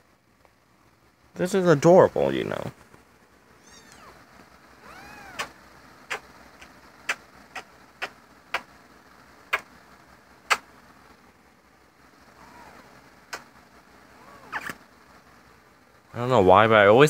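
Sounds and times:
cat meowing: 0:03.6 - 0:04.2, 0:04.8 - 0:05.5
lip-smacking kisses: 0:05.3 - 0:08.7, 0:09.5 - 0:09.7, 0:10.4 - 0:10.7, 0:13.3 - 0:13.5, 0:14.5 - 0:14.8.

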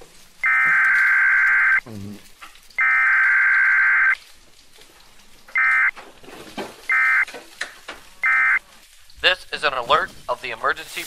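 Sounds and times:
electronic alert beeping: 0:00.4 - 0:01.8, 0:02.8 - 0:04.2, 0:05.6 - 0:05.9, 0:06.9 - 0:07.2, 0:08.2 - 0:08.6.

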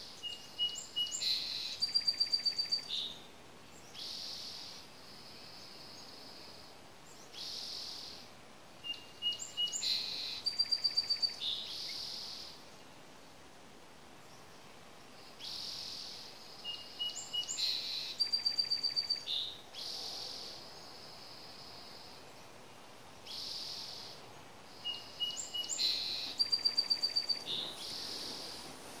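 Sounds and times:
bird singing with buzzy notes and trill: 0:00.0 - 0:04.9, 0:08.8 - 0:12.6, 0:15.4 - 0:19.9, 0:23.2 - 0:28.6.

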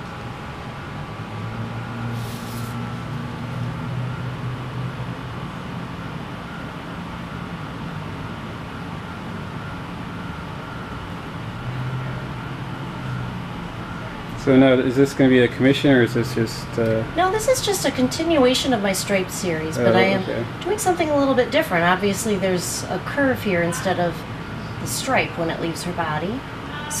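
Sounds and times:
low mechanical hum: 0:00.0 - 0:27.0
short hiss: 0:02.1 - 0:02.8.

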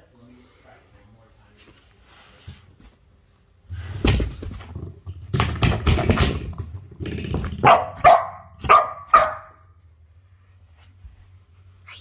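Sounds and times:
dog barking sharply: 0:07.6 - 0:09.6.

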